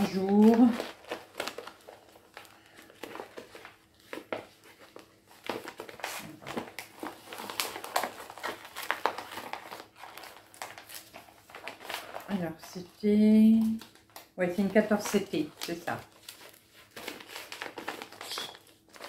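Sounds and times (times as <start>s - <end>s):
plastic packaging crinkling: 0.0s - 19.0s.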